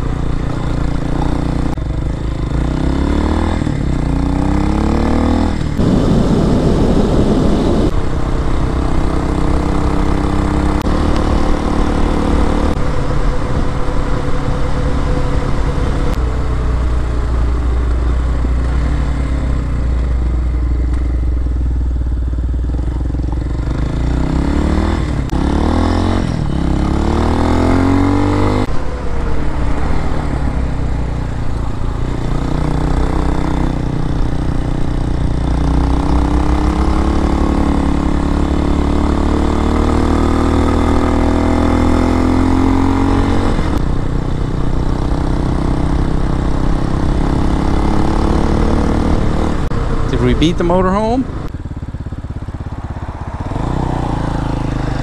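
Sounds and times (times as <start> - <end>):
motorcycle engine running: 0.0 - 55.0
wind noise: 5.2 - 20.2.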